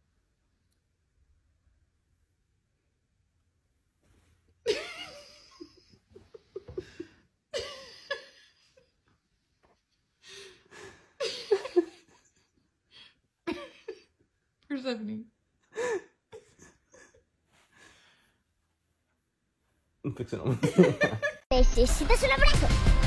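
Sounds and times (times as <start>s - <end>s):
people laughing: 20.3s - 21.5s.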